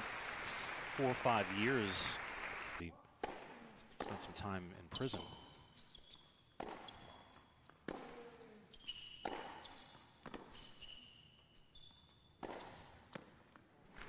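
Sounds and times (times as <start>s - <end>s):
racket hitting tennis ball: 3.2s - 4.3s, 6.6s - 10.7s, 12.4s - 13.4s
tennis ball bouncing: 3.2s - 4.4s, 5.1s - 10.9s, 12.4s - 14.0s
shoes squeaking on court: 3.3s - 14.0s.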